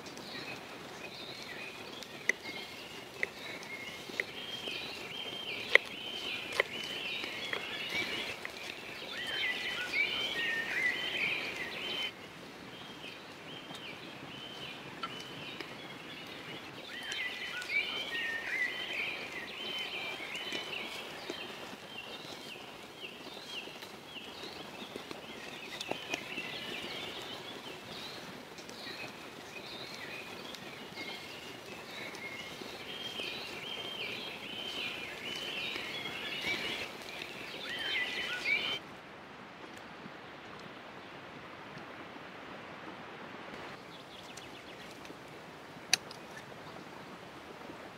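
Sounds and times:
birds chirping: 0:00.0 - 0:38.8, 0:43.7 - 0:45.1.

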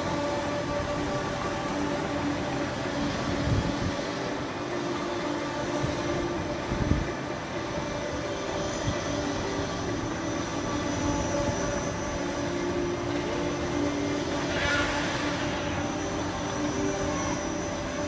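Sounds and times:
amusement ride mechanical hum: 0:00.0 - 0:18.0
wind gusts on microphone: 0:05.7 - 0:09.5.

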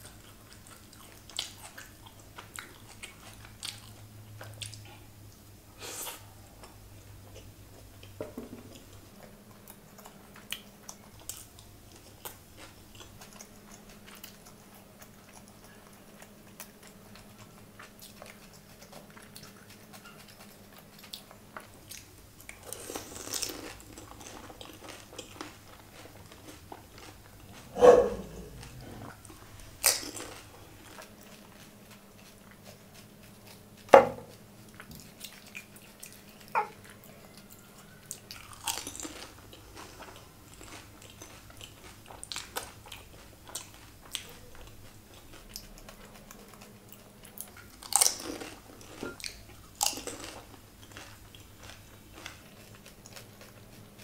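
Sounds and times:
chewing and wet mouth sounds: 0:00.0 - 0:54.0
crisp shells cracking in mouth: 0:29.8 - 0:32.4, 0:47.4 - 0:53.9.

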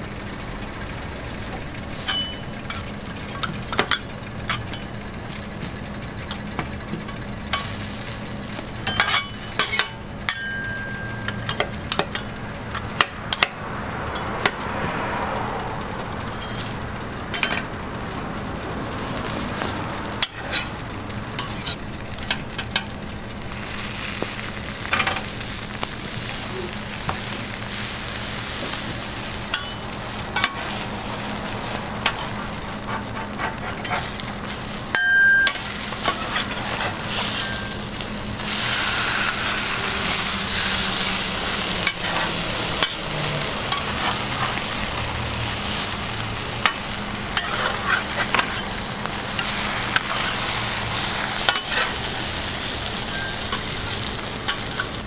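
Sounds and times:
food sizzling on a griddle: 0:00.0 - 0:55.0
metal spatula scraping griddle: 0:01.9 - 0:05.6, 0:07.1 - 0:14.7, 0:19.0 - 0:22.9, 0:26.3 - 0:55.0.

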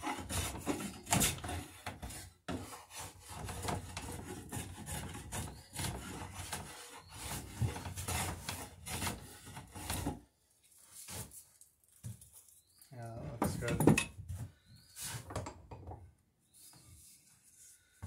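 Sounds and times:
hand plane scraping wood: 0:00.0 - 0:10.2.

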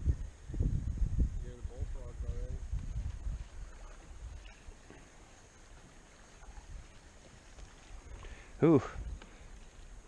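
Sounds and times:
water lapping around kayak: 0:02.8 - 0:10.0.

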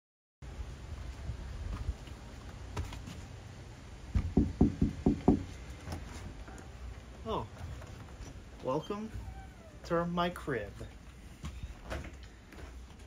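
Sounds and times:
dull knocks: 0:04.1 - 0:05.6.

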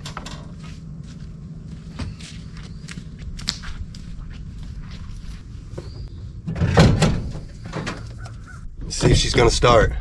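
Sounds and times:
low steady rumble: 0:00.0 - 0:10.0
footsteps on dirt and dry leaves: 0:00.5 - 0:05.8.

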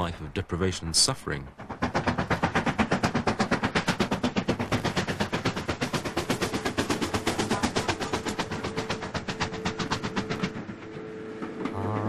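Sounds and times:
steam locomotive exhaust beats: 0:00.0 - 0:12.0.

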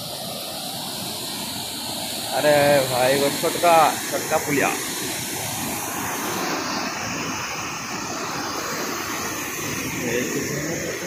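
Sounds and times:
river rushing over rocks: 0:00.0 - 0:11.0.

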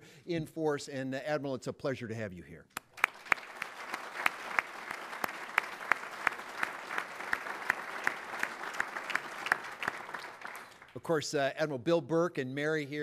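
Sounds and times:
close loud clapping: 0:02.8 - 0:11.0
room applauding: 0:02.8 - 0:11.2.

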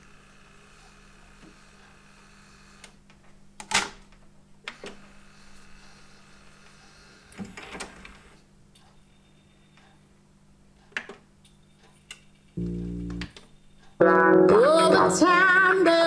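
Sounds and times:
button clicks: 0:12.6 - 0:13.4.

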